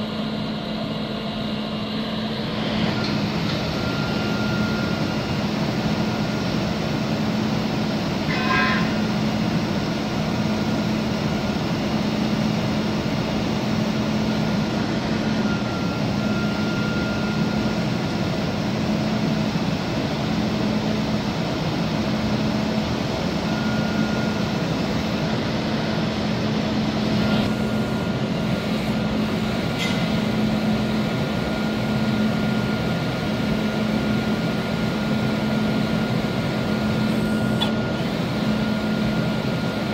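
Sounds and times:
diesel engine running: 0.0 - 39.9
thin high whine: 8.2 - 9.4.

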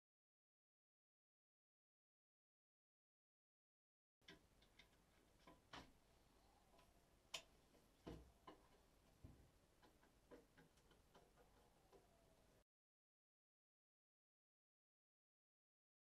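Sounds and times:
hand tool clicking in basin drain: 4.2 - 6.0, 6.7 - 12.2.

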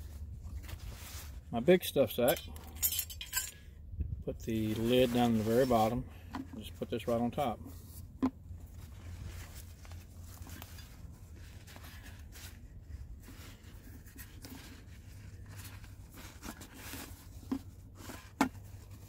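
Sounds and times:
fabric sack rustling and scraping: 0.0 - 1.7, 4.5 - 6.0, 8.6 - 19.0.

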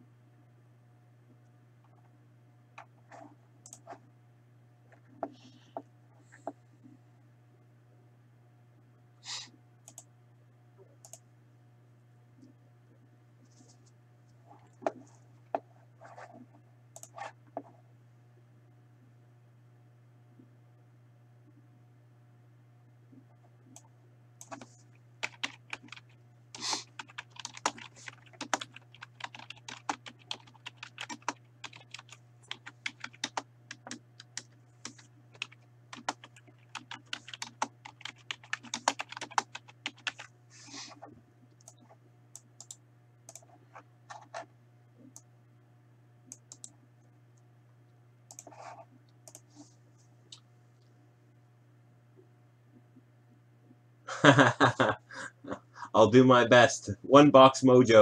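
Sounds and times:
steady low hum: 0.0 - 58.0
typing on computer keyboard: 24.4 - 26.2, 26.8 - 40.3.

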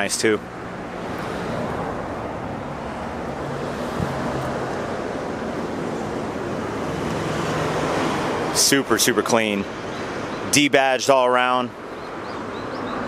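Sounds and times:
distant traffic hum: 0.0 - 13.0
wind on microphone: 3.6 - 5.8.

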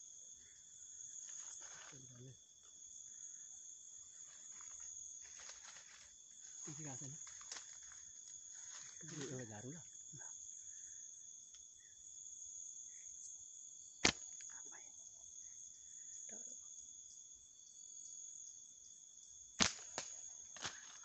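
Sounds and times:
night insects chirping: 0.0 - 21.0
sharp click: 14.0 - 14.5.

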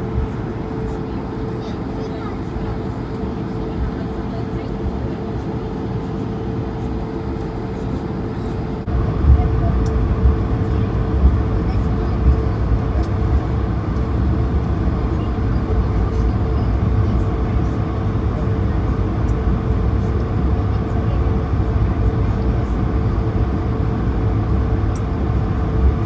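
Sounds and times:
jet engines idling in cabin: 0.0 - 26.0
steady hum: 0.0 - 26.0
low rumble: 8.8 - 26.0.

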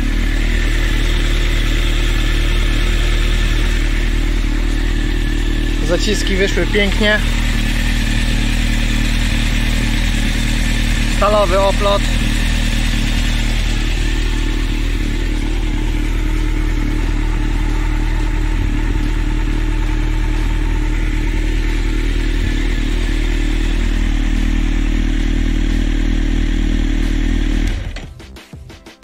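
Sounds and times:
motorcycle engine idling: 0.0 - 28.8.

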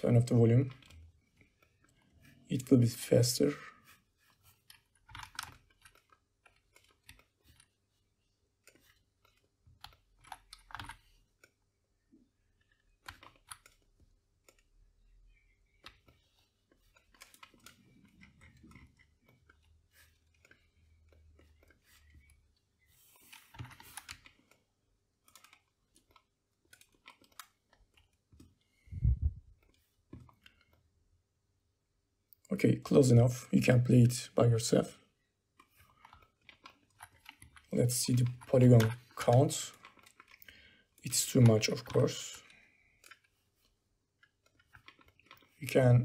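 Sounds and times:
keyboard and mouse clicks: 4.6 - 7.8, 8.6 - 11.6, 12.5 - 24.6, 25.2 - 30.8, 35.6 - 45.9
mouse and keyboard clicks: 8.6 - 11.6, 12.6 - 14.7.

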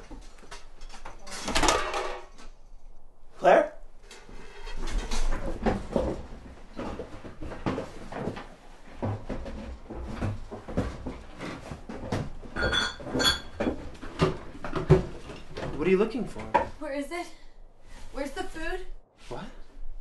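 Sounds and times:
cans and dishes clattering: 12.1 - 15.8.

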